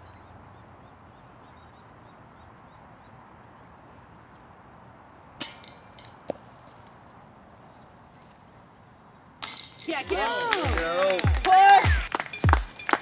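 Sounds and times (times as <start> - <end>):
disc hitting metal chains: 5.4 - 6.3, 9.4 - 10.6.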